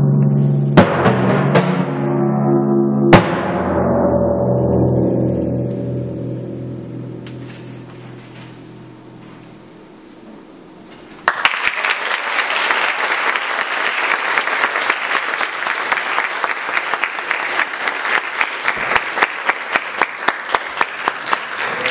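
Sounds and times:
audience applauding: 11.2s - 21.9s.

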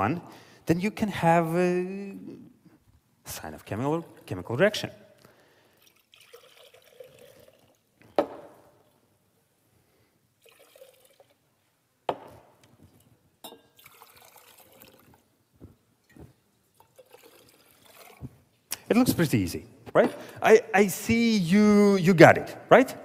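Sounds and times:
liquid pouring into glass: 5.6s - 9.0s, 10.4s - 11.5s, 12.9s - 15.3s, 16.0s - 18.6s
glass knocking: 12.1s - 12.4s.

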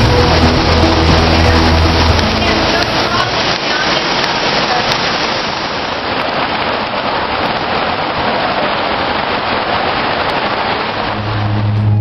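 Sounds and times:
heavy rain on pavement: 0.0s - 12.0s.

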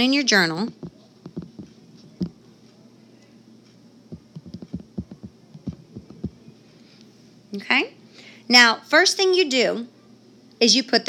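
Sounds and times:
stylus taps on touchscreen: 0.8s - 2.4s, 4.2s - 6.4s.

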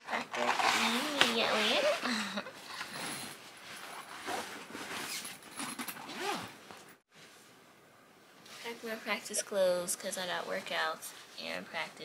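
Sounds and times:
rustling and handling noises: 0.1s - 7.6s.

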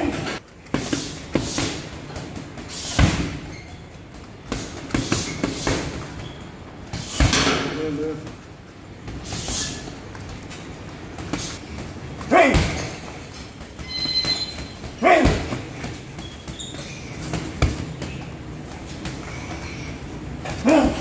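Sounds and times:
gloves thudding on punch bags: 0.6s - 6.2s, 10.4s - 19.5s
brief high squeak: 13.8s - 14.8s.

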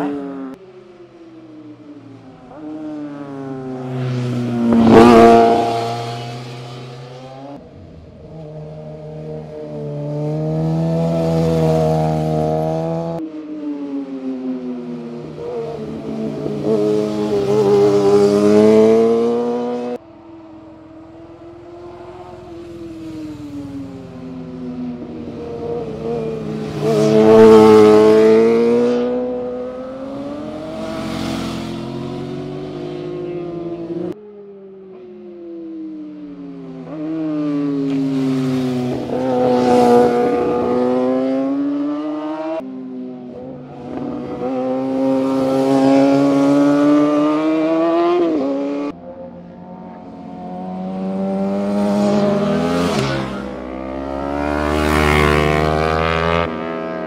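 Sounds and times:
sport motorcycles passing: 0.0s - 57.0s.

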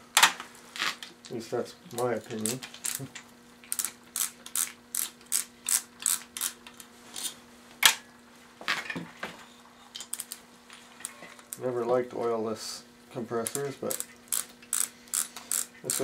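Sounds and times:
socket ratchet clicking: 13.5s - 16.0s.

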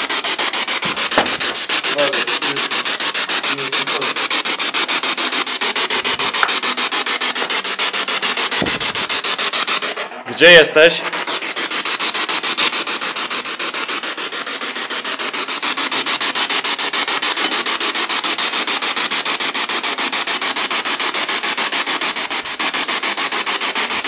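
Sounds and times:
pulsing radio static: 1.1s - 4.5s.

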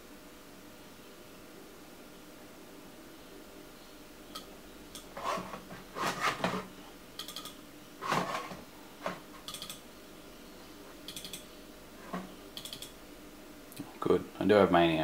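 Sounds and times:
computer mouse clicks: 7.2s - 7.6s, 9.4s - 9.8s, 11.0s - 11.5s, 12.6s - 13.0s.

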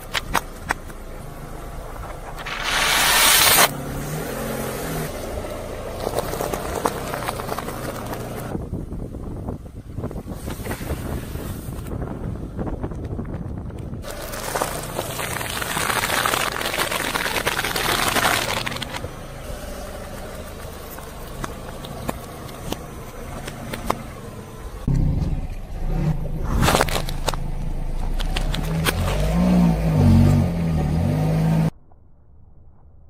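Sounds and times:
water spraying from burst bottle: 2.4s - 3.7s, 14.2s - 19.0s
watermelon splitting: 14.0s - 19.0s, 26.4s - 27.5s.

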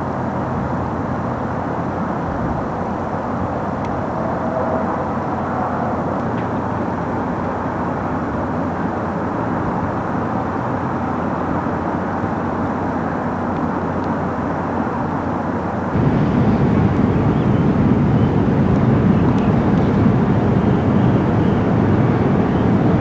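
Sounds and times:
low outdoor rumble: 0.3s - 10.8s, 15.7s - 23.0s.

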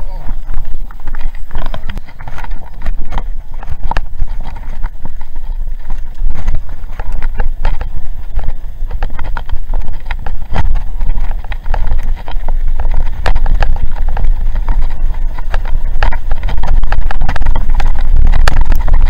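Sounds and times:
bike and stones rattling: 0.0s - 19.0s
wind rumble on microphone: 0.0s - 19.0s.

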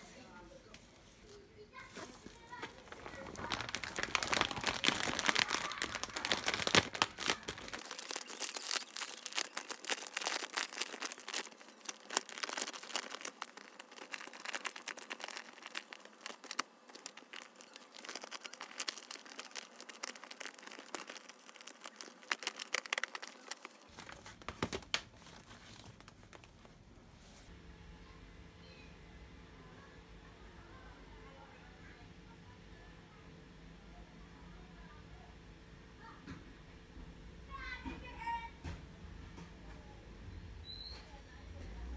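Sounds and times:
plastic bag crinkling: 1.8s - 26.9s.

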